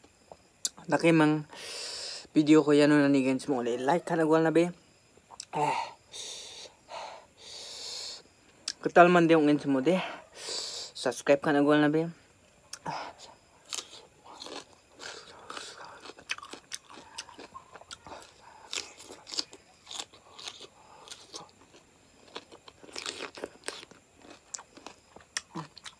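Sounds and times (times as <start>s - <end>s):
person chewing with mouth clicks: 13.7s - 25.9s.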